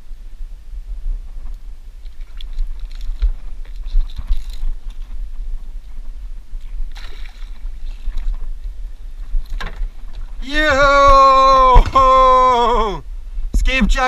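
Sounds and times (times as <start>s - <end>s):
steady low rumble: 0.0s - 14.0s
fishing line ticks and rubs: 1.3s - 10.4s.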